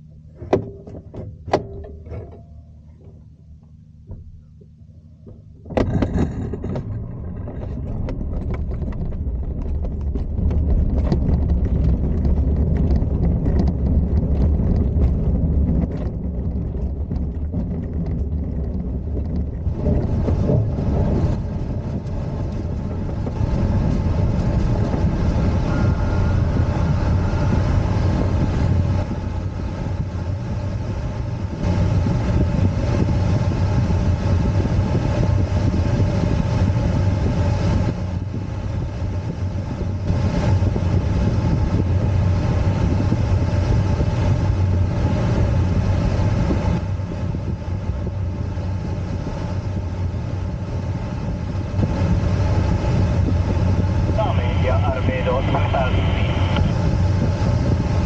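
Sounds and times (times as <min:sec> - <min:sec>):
glider wheel rumbling on grass: 0:05.2 - 0:55.9
rush of airflow: 0:05.7 - 0:58.0.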